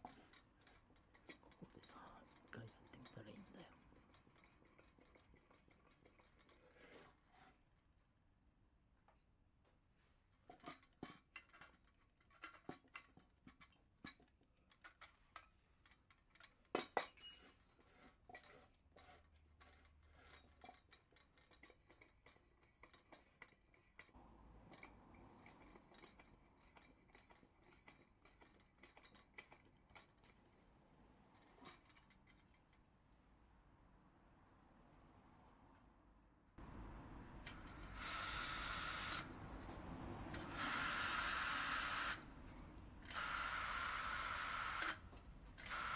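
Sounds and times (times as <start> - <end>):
metal clicks and clinks of stove: 10.5 - 17.7.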